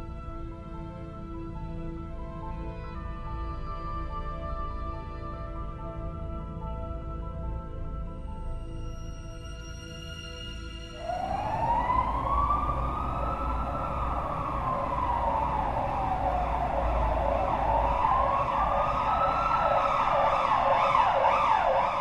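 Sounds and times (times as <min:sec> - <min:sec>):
emergency vehicle siren wailing: 0:10.7 - 0:22.0.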